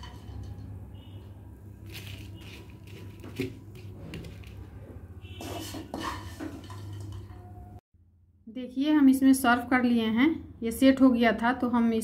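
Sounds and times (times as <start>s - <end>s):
sticky mixture scraped onto steel plate: 5.2s - 7.1s.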